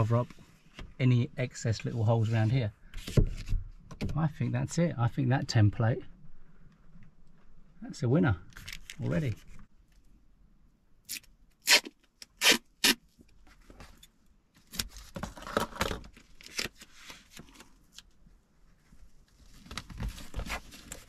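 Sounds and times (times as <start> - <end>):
duct tape ripping: 11.1 - 13.0.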